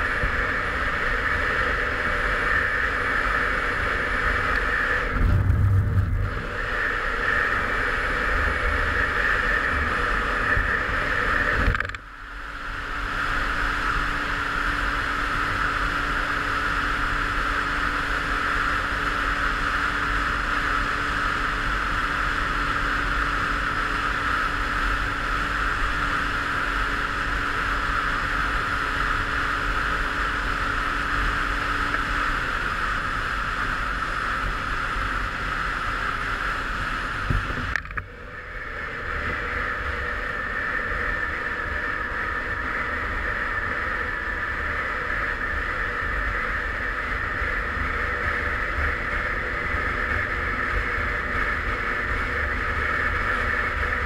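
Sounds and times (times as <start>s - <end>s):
wind noise on microphone: 3.7s - 12.0s, 31.4s - 41.1s.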